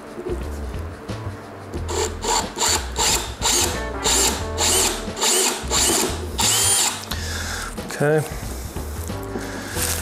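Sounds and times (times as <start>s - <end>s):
cordless drill whining in bursts: 1.9s - 7.1s.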